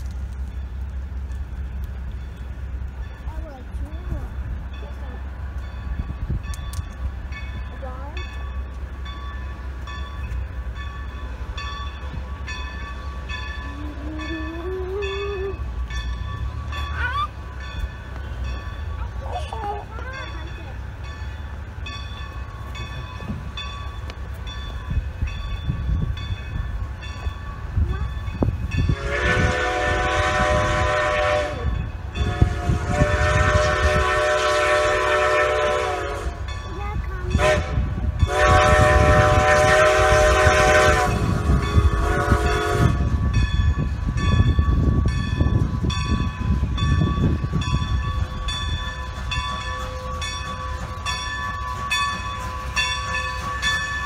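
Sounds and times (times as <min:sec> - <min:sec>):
locomotive low rumble: 0:00.0 - 0:54.0
steam locomotive whistle blasts: 0:28.9 - 0:36.4, 0:37.4 - 0:43.2.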